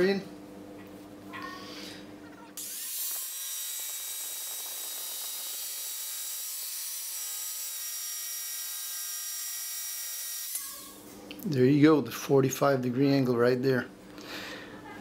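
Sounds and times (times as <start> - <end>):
jigsaw motor whine: 2.6 - 10.6.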